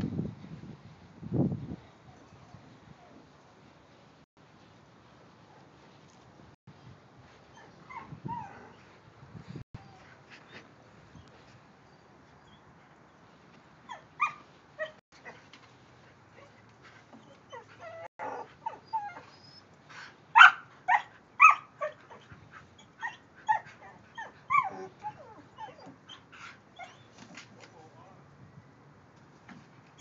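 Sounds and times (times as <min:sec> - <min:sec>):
dog yelping and whining: 0:17.1 - 0:19.6, 0:20.4 - 0:27.8.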